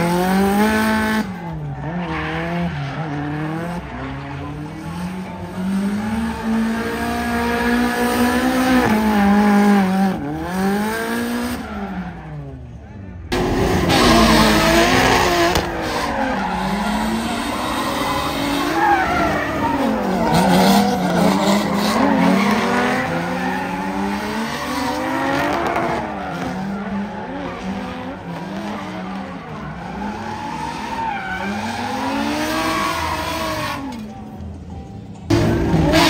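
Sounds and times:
car engines revving: 0.0s - 36.0s
tire squeal and skidding: 0.1s - 4.4s, 10.8s - 12.6s, 13.4s - 34.1s.

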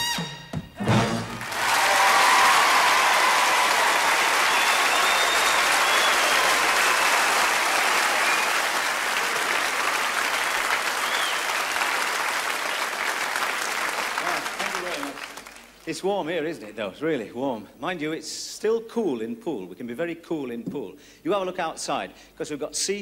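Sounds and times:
audience applauding: 1.2s - 15.8s
whistles from audience: 1.7s - 9.0s, 9.9s - 12.0s.

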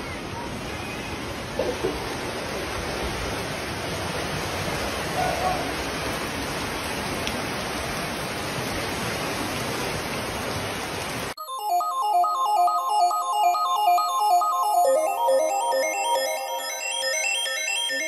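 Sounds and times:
floodwater rushing: 0.0s - 11.4s.

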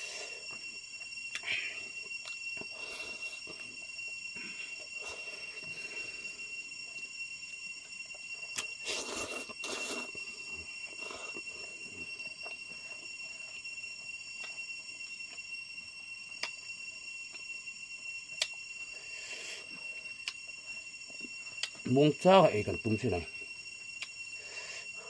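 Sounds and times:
high-pitched ringing tone: 0.0s - 25.0s
slurps: 8.8s - 10.2s.

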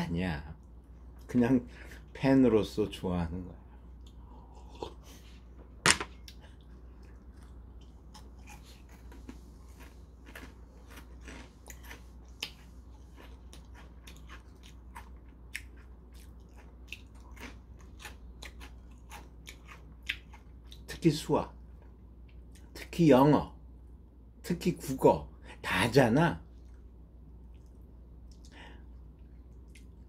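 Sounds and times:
person chewing crunchy crackers: 6.1s - 21.0s.

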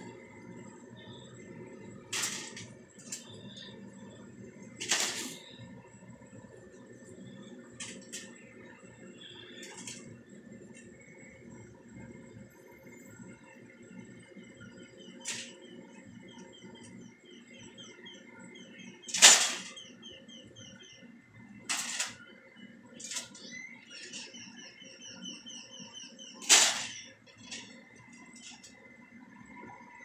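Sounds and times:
faint high chirping: 0.0s - 2.0s, 3.0s - 6.0s, 8.3s - 10.1s, 12.5s - 21.5s, 22.2s - 29.0s.

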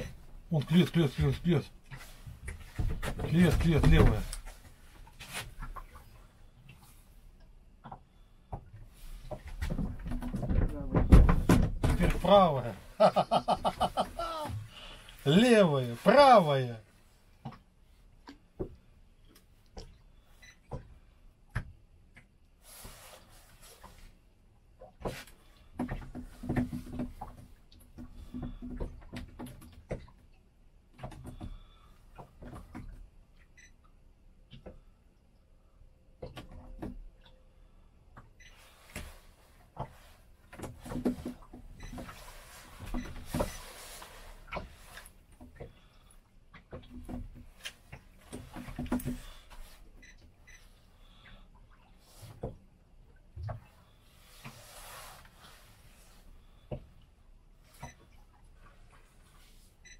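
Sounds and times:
light knocks and clicks on boat: 0.0s - 12.8s, 17.3s - 23.0s, 23.6s - 34.9s, 36.1s - 37.4s, 38.1s - 54.6s
soft rustle: 4.2s - 7.4s, 22.6s - 24.3s, 38.5s - 40.9s, 42.0s - 46.2s, 53.5s - 59.9s.

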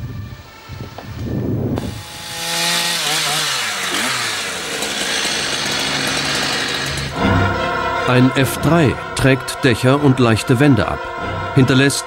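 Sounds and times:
chainsaw cutting wood: 1.8s - 7.4s.

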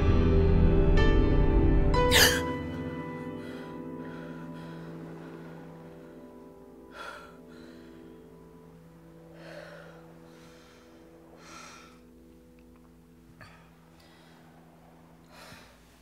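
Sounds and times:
woman breathing heavily: 2.1s - 12.6s, 13.2s - 16.0s.

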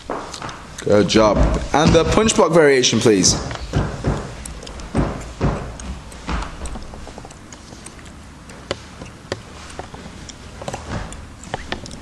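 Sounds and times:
sharp taps or squeaks: 3.1s - 12.0s.

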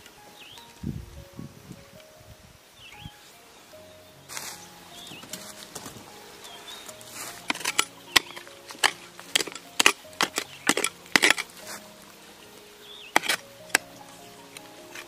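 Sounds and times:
hoe chopping and scraping soil: 6.7s - 11.8s, 13.1s - 13.9s, 14.5s - 15.0s.

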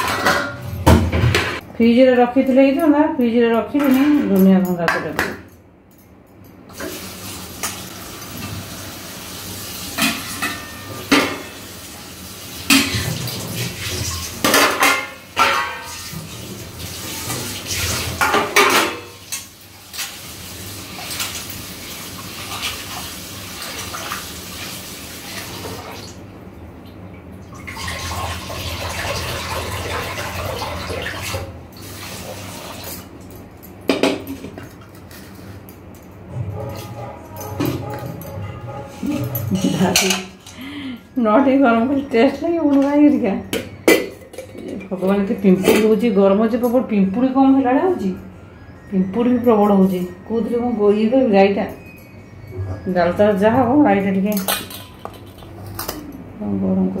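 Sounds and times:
dishes clinking and clattering: 0.0s - 1.7s, 3.6s - 8.7s, 9.9s - 11.7s, 12.6s - 20.2s, 20.9s - 22.8s, 32.7s - 40.7s, 42.6s - 46.9s, 51.6s - 56.3s
water running: 6.7s - 26.3s, 27.4s - 33.4s.

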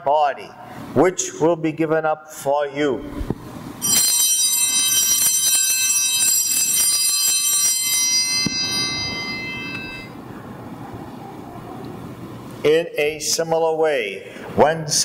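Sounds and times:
altar bells jingling: 3.8s - 10.2s.

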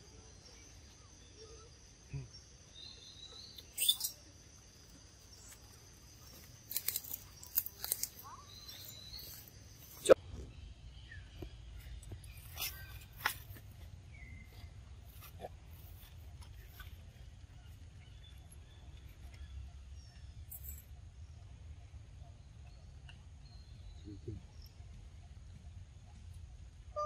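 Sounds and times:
faint short chirps: 3.5s - 4.2s.

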